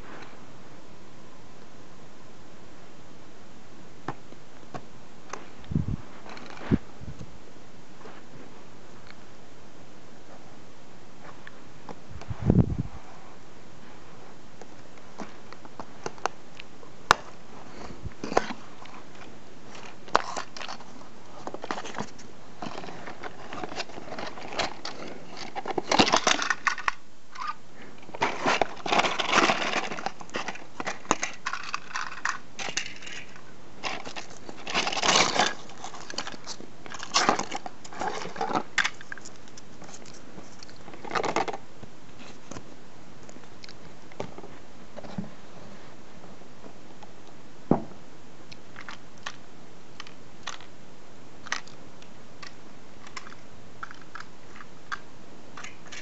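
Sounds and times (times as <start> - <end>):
packaging rustling and scraping: 5.3 - 7.0, 17.1 - 42.7, 55.6 - 56.0.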